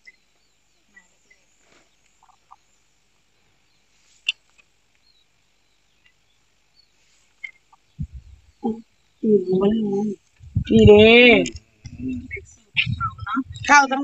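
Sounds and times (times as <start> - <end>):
faint animal chirps: 0.0 - 2.8, 3.6 - 10.8.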